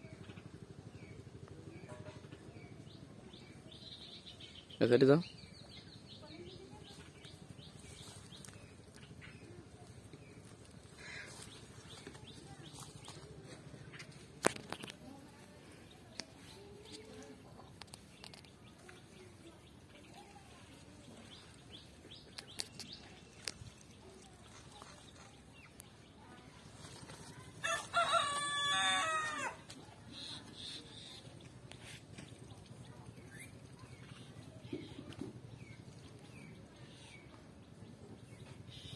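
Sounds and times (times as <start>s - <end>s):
small birds chirping: 0.0s - 38.9s
rooster crowing: 27.6s - 29.6s.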